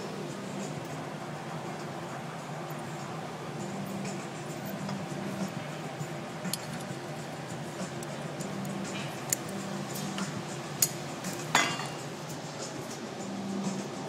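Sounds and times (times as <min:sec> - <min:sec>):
tools clinking on metal and glass: 0:10.8 - 0:12.1.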